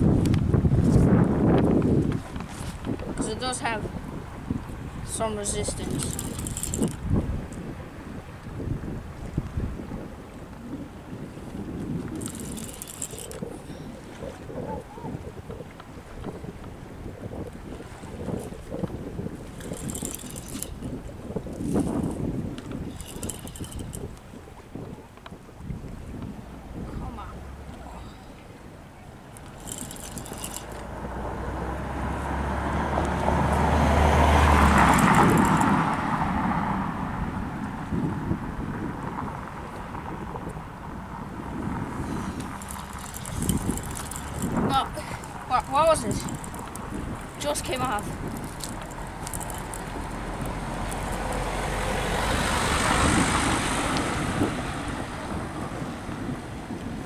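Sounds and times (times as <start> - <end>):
wind rumbling on microphone: 0.0 - 57.0
vehicle passing by: 30.8 - 37.9, 41.1 - 56.7.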